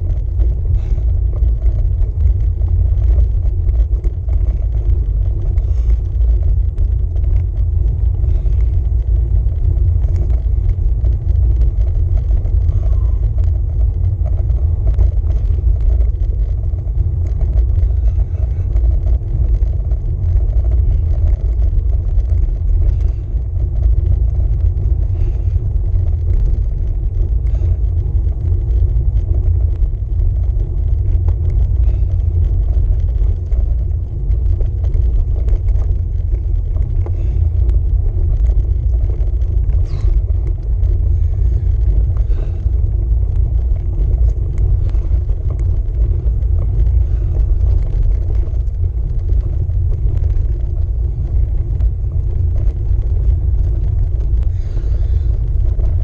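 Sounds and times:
faint rattles: 0:00.0 - 0:56.0
road vibration rumble: 0:00.0 - 0:56.0
wind buffeting: 0:00.0 - 0:56.0.

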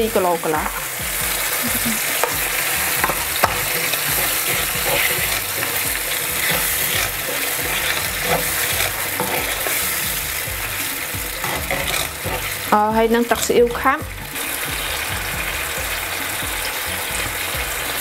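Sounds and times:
sauce sizzling in a pan: 0:00.0 - 0:18.0
wooden spoon stirring: 0:00.6 - 0:15.4
spoon knocking against pan: 0:02.2 - 0:10.2.

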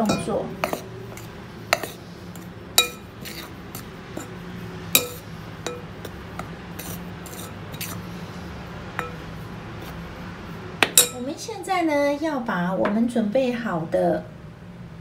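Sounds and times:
spoon clinking on glass bowl: 0:02.8 - 0:03.5, 0:05.0 - 0:05.9, 0:09.0 - 0:09.2, 0:11.0 - 0:11.2.

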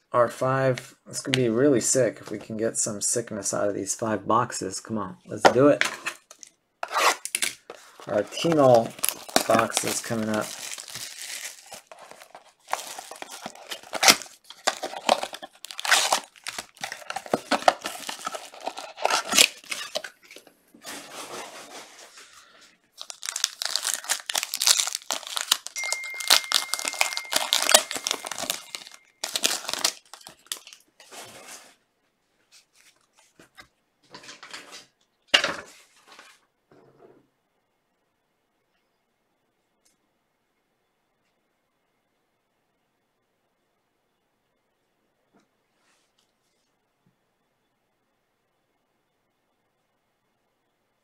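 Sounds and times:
plastic wrapper tearing and crinkling: 0:06.3 - 0:20.4, 0:23.0 - 0:30.8.

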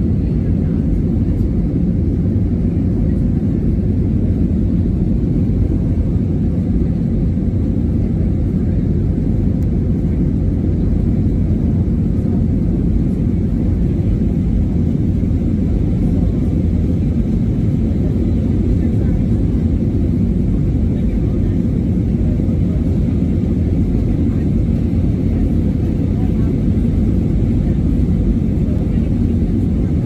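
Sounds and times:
airliner engines rumbling: 0:00.0 - 0:30.0.

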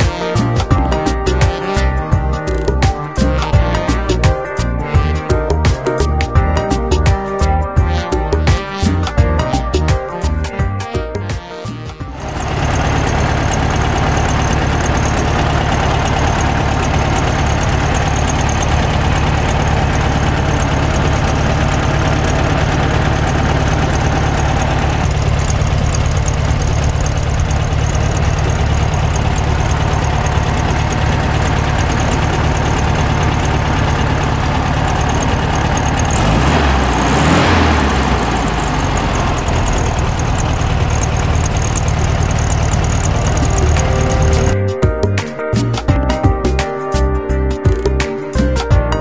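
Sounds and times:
car engine idling: 0:00.0 - 0:45.0.

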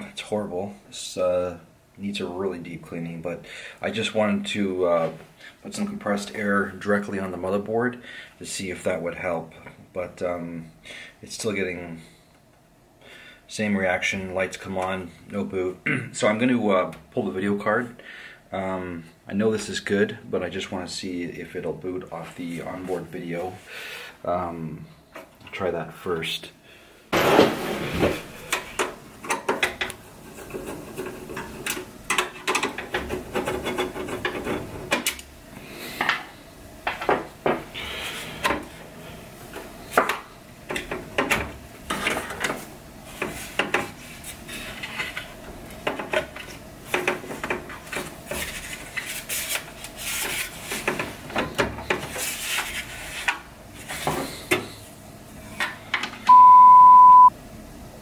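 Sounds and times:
censor bleep: 0:56.3 - 0:57.3.

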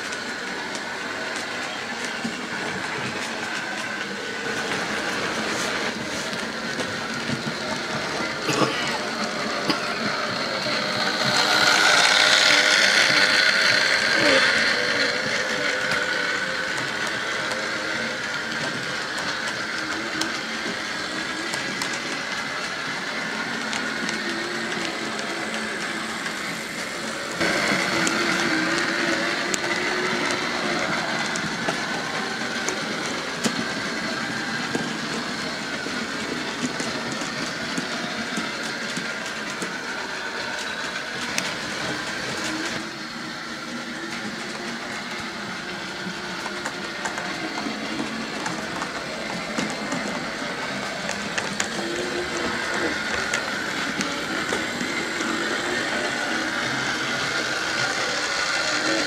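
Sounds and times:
model train motor hum: 0:00.0 - 0:59.0
wheels clicking over rail joints: 0:00.0 - 0:59.0.

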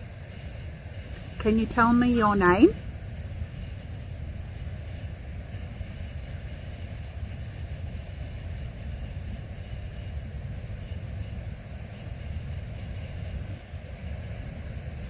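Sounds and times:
faint radio static: 0:01.4 - 0:02.8.

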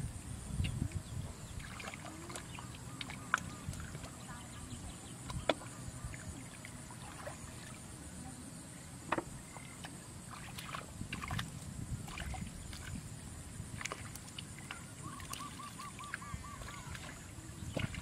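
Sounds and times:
hands splashing in muddy water: 0:13.7 - 0:18.0.

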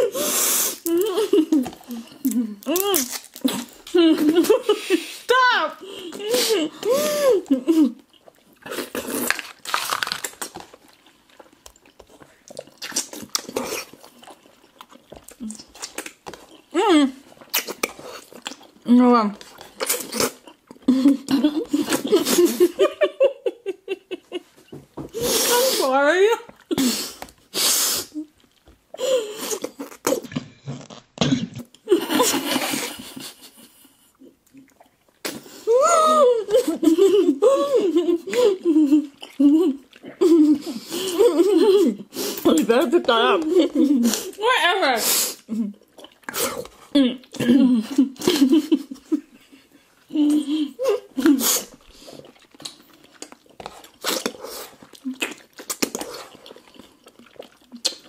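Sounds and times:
wet slurping and sucking: 0:00.0 - 0:00.9, 0:26.8 - 0:28.3, 0:51.2 - 0:58.0
woman laughing: 0:03.9 - 0:07.9, 0:20.9 - 0:24.6, 0:35.7 - 0:42.0, 0:46.9 - 0:51.4
mouth smacks and clicks: 0:11.4 - 0:16.7, 0:17.4 - 0:18.8, 0:51.2 - 0:58.0.

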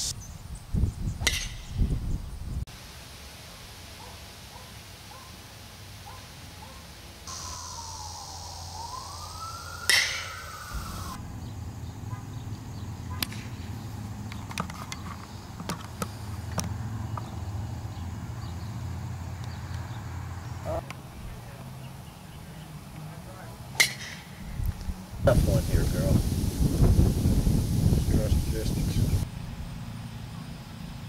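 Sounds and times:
golf club striking ball: 0:01.2 - 0:01.7, 0:09.9 - 0:10.3, 0:23.8 - 0:24.4
wailing sliding tone: 0:07.3 - 0:11.2.

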